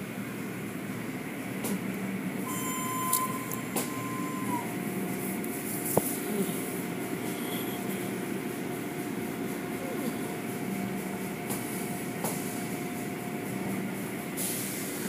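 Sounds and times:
faint steady tone: 2.5s - 4.8s.

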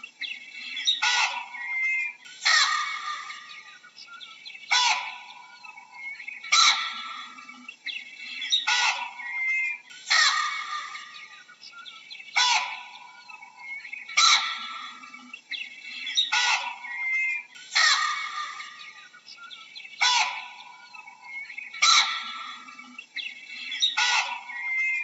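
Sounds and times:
faint bird chirps: 0.0s - 25.0s
baboon calling: 0.8s - 3.6s, 4.7s - 5.4s, 6.0s - 7.4s, 8.5s - 11.3s, 12.4s - 15.0s, 16.0s - 19.0s, 20.0s - 22.9s, 23.7s - 25.0s.

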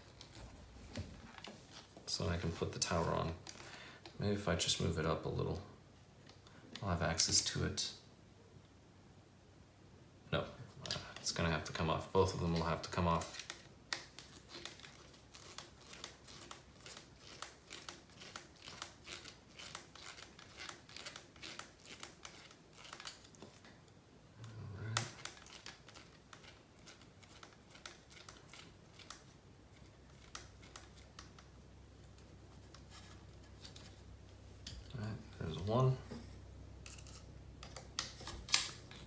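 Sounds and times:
plastic parts being handled: 12.3s - 23.9s, 36.8s - 39.0s.

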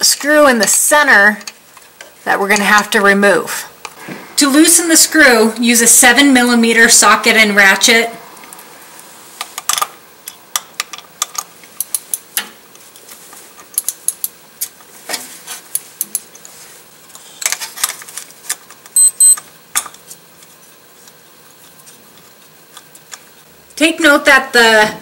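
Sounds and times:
short high beeps: 19.0s - 19.4s.

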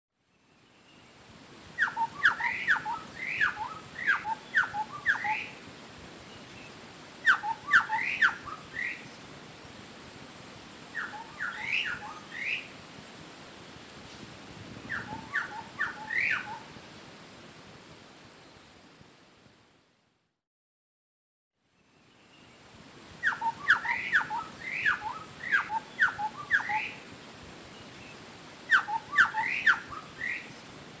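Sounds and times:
faint steady hiss: 0.1s - 20.4s, 21.6s - 31.0s
bird whistling song: 1.8s - 5.6s, 7.3s - 9.1s, 11.0s - 12.7s, 14.8s - 16.7s, 23.2s - 27.0s, 27.8s - 30.6s.

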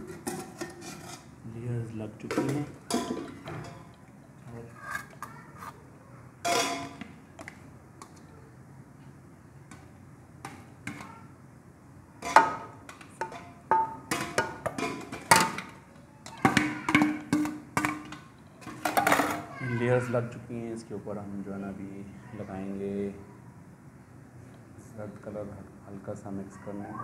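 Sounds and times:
plate scraping steel pots: 0.0s - 1.3s.

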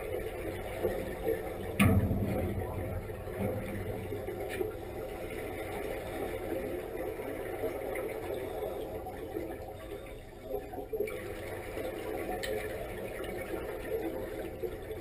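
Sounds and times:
diving helmet exhaust bubbling: 0.0s - 15.0s
low underwater rumble: 0.6s - 8.5s.

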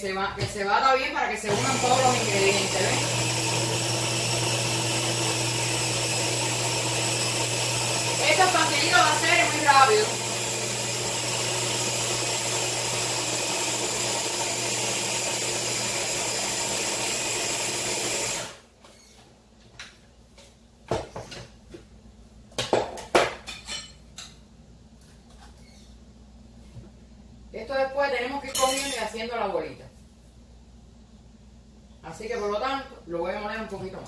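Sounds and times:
electric food chopper running: 1.5s - 18.6s.

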